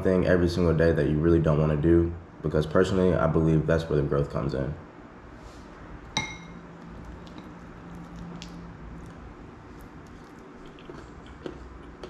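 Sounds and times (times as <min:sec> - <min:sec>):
faint steady hum: 0:00.0 - 0:12.0
soft eating sounds: 0:05.4 - 0:12.0.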